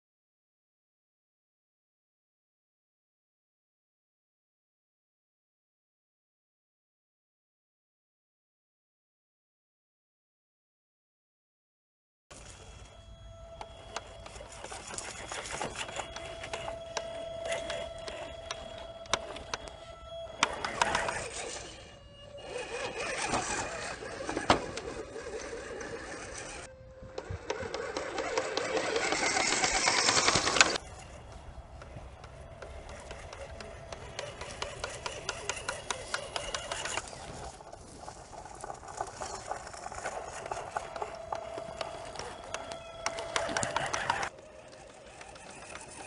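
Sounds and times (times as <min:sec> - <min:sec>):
electric motor whining: 0:12.3 - 0:46.0
tyres crackling on dirt and twigs: 0:12.3 - 0:46.0.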